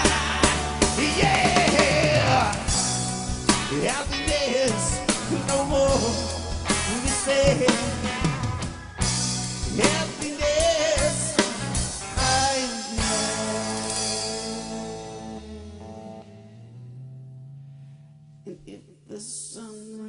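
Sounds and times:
rock band playing: 0:00.0 - 0:17.6
wavering lead melody: 0:13.0 - 0:18.5.

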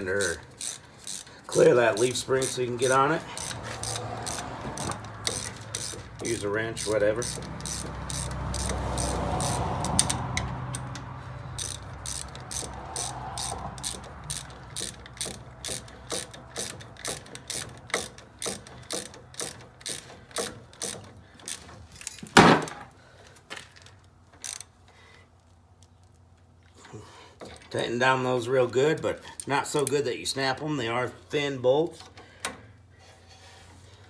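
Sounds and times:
hand ratchet clicking: 0:00.0 - 0:22.2, 0:23.6 - 0:26.3.

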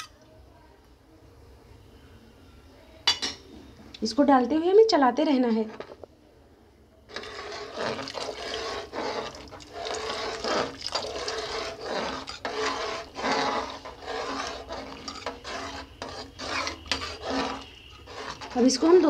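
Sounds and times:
metal ladle scraping a pot: 0:07.1 - 0:19.0.

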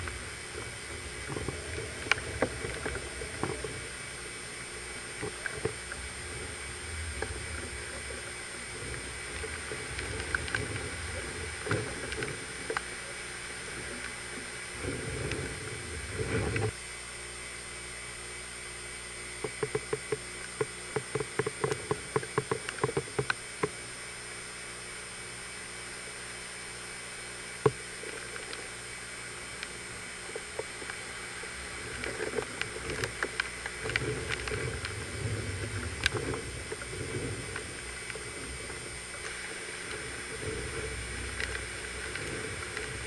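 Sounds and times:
wind gusting against microphone: 0:00.0 - 0:13.4
steady hiss: 0:00.0 - 0:43.0.

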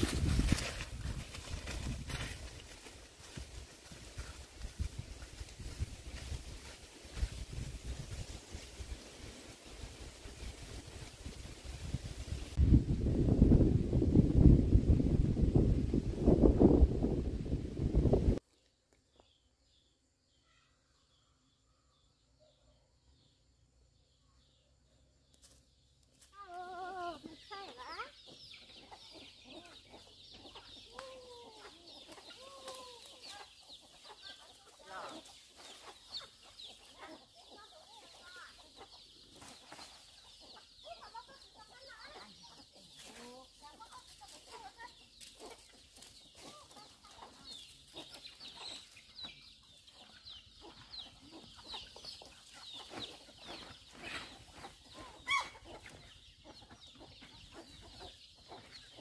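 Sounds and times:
constant high chirping: 0:18.4 - 0:59.0
chickens clucking: 0:26.8 - 0:59.0.

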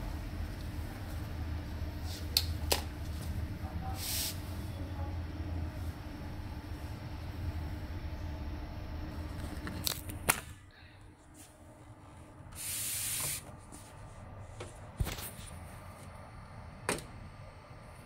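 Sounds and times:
low hum: 0:00.0 - 0:12.5
short hiss: 0:12.6 - 0:13.4.

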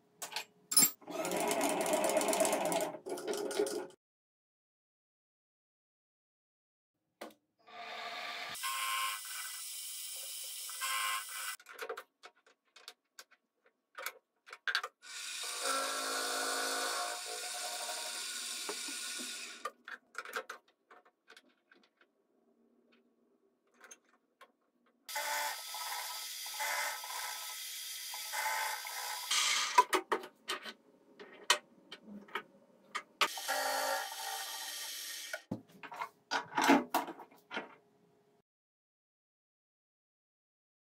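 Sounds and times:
drill motor running: 0:15.1 - 0:19.6, 0:25.1 - 0:29.4, 0:33.3 - 0:35.4.

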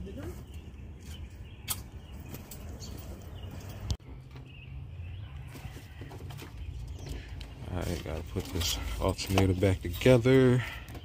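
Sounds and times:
sharp click: 0:01.6 - 0:02.0.

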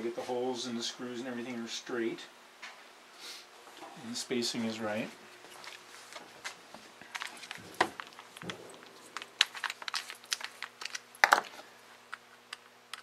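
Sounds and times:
clicks and knocks of handled tools: 0:06.4 - 0:13.0.

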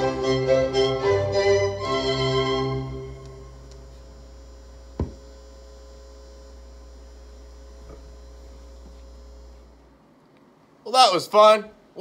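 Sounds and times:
low buzzing hum: 0:01.7 - 0:10.8.

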